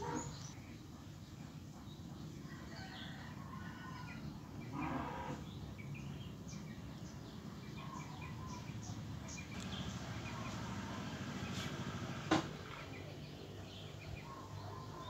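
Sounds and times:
small birds chirping: 0.0s - 15.0s
loud low bird call: 4.7s - 5.5s.

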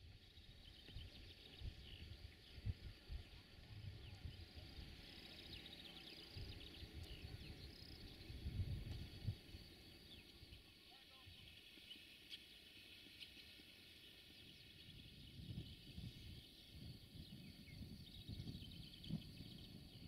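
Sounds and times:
wind gusts on microphone: 0.4s - 10.6s, 14.2s - 20.0s
birds chirping and singing: 0.4s - 20.0s.

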